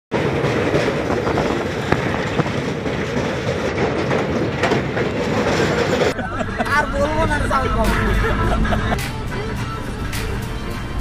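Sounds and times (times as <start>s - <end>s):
sharp rail clacks: 0.1s - 6.2s
train wheels rumbling on rails: 0.1s - 11.0s.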